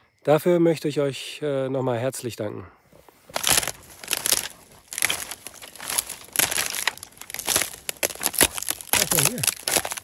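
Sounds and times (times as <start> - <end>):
footsteps crunching on dry reeds: 3.0 - 10.0.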